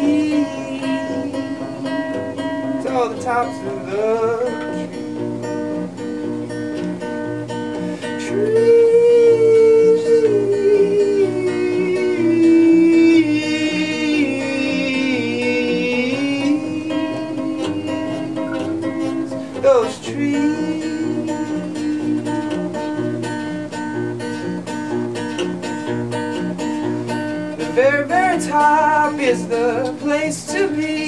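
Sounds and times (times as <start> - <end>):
man singing: 0.0 - 5.0, 7.8 - 23.4, 27.5 - 31.0
acoustic guitar strumming: 0.0 - 31.0.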